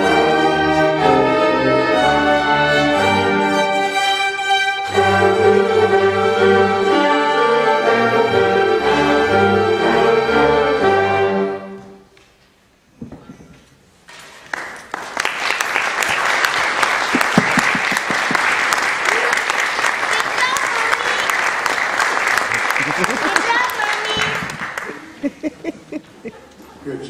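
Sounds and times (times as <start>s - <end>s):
orchestra strings playing: 0.0s - 12.1s
audience applause: 14.4s - 25.9s.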